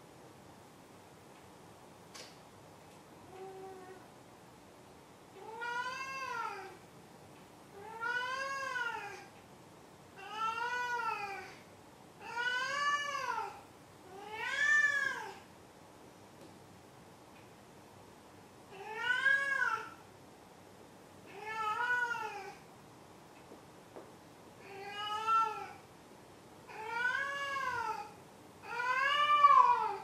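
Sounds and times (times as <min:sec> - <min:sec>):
cat meowing: 0:12.2 - 0:15.4, 0:18.8 - 0:20.0, 0:21.3 - 0:22.6, 0:26.7 - 0:30.0.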